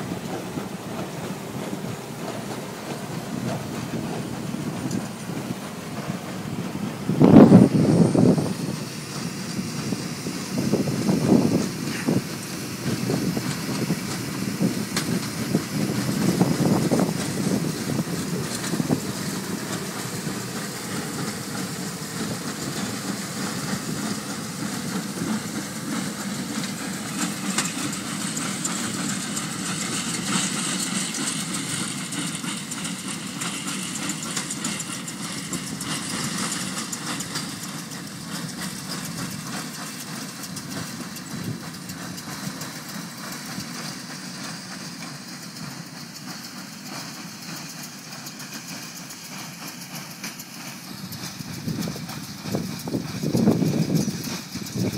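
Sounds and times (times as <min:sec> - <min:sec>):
diesel engine under load: 0:00.0 - 0:54.9
machinery clattering: 0:00.0 - 0:54.9.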